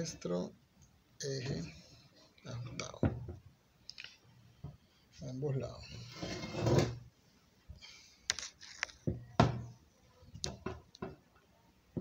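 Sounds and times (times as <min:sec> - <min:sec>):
knocks and clicks of metal and wood: 0:10.4 - 0:11.2.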